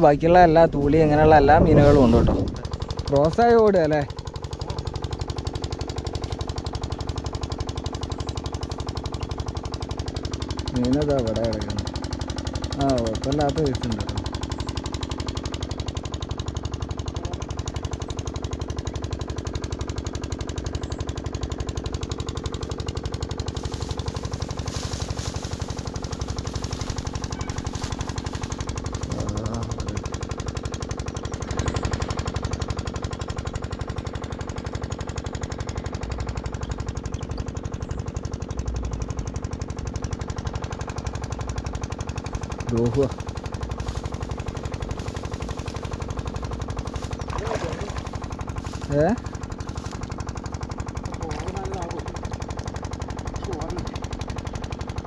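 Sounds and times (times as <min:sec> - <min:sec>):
motor running with rapid pulse: 0:00.0 - 0:55.0.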